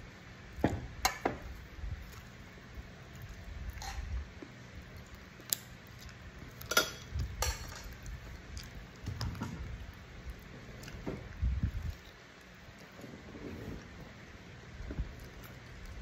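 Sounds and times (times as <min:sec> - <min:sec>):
soft chewing thumps: 0:07.9 - 0:14.2.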